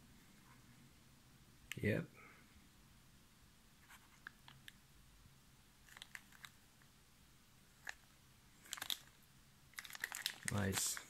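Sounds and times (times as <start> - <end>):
plastic wrapping crinkling: 5.8 - 6.6, 7.8 - 11.0.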